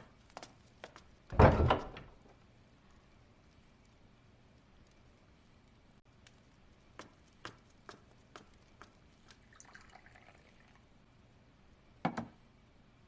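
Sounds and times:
water pouring from teapot: 9.4 - 10.9.

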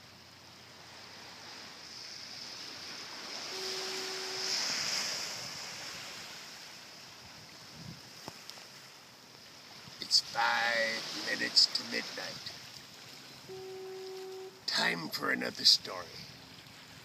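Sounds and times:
steady high hiss: 0.0 - 17.0
short steady hum: 13.5 - 14.7.

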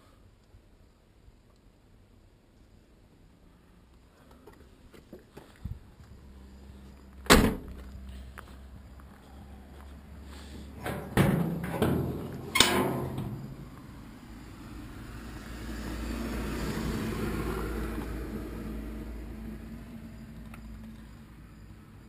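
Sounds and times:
metal clunks of luggage lid: 10.8 - 13.5.

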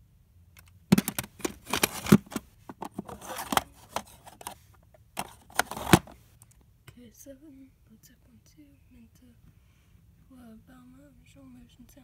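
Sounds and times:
plastic cassette cases clacking: 0.6 - 6.2
cassette cases scraping: 0.9 - 6.2.

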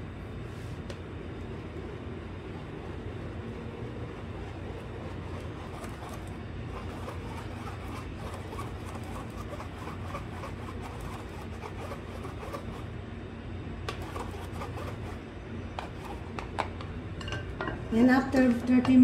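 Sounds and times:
steady low hum: 0.0 - 19.0
utensil scraping through batter: 1.5 - 13.0, 13.9 - 16.6.

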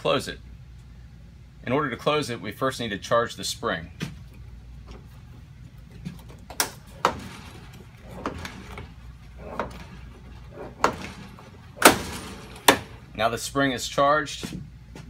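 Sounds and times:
mechanical clunks and clicks: 5.8 - 13.2.

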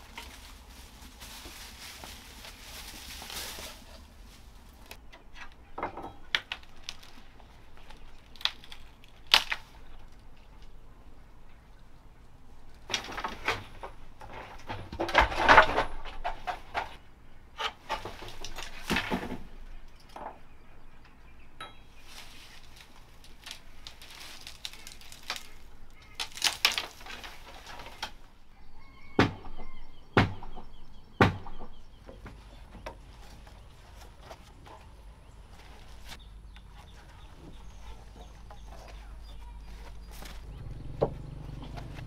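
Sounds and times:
thatch and bamboo rustling: 0.0 - 10.8, 12.7 - 17.0, 17.6 - 20.4, 21.6 - 30.7, 31.3 - 42.0
sharp knocks: 30.2 - 31.8.

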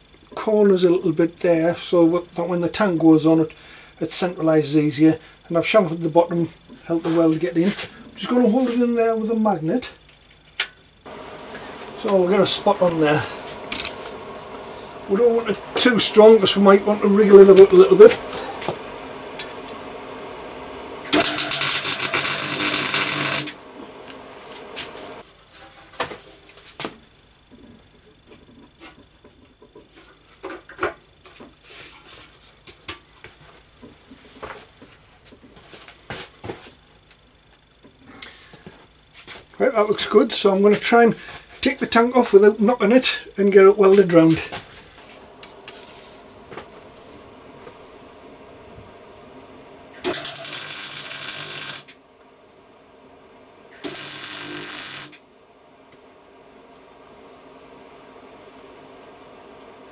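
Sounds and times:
welder arcing crackle: 10.6 - 25.2, 43.9 - 52.0, 53.6 - 56.1.

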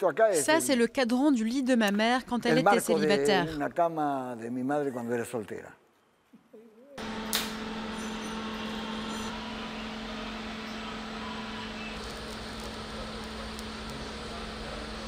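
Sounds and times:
faint welding crackle: 7.0 - 15.0
welder electrical hum and hiss: 7.0 - 15.0.

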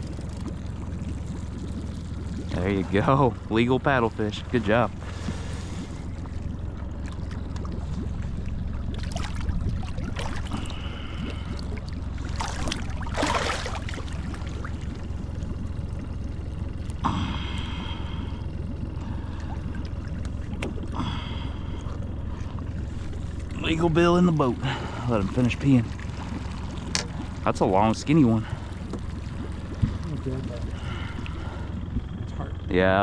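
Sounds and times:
fish splashing in water: 0.0 - 32.2
low rumble: 0.0 - 33.0.

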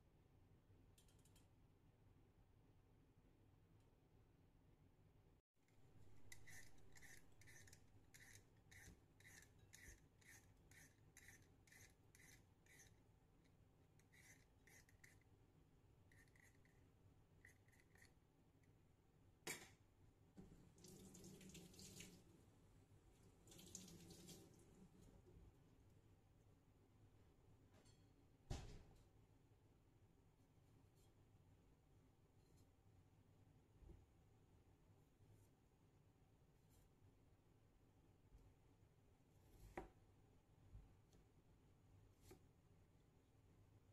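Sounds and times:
peeler scraping potato: 6.0 - 13.0, 14.0 - 15.2, 16.1 - 16.8, 17.4 - 18.2.

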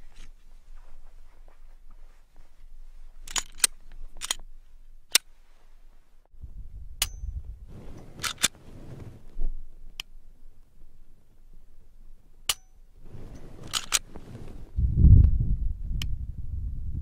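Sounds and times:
pistol slide being worked: 3.2 - 4.5, 7.9 - 8.6, 12.5 - 14.2
pistol dry-fire clicks: 3.3 - 4.5, 12.4 - 12.8, 13.6 - 14.1.

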